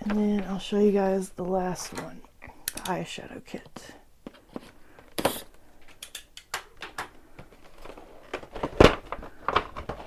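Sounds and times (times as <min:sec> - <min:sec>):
packaging knocks and scrapes: 0:07.3 - 0:10.0.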